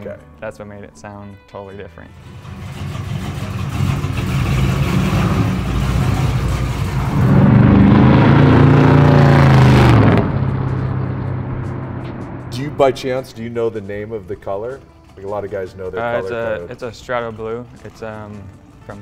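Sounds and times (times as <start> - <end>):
truck exhaust roaring by: 2.1 - 15.4
quiet engine running: 2.1 - 19.0.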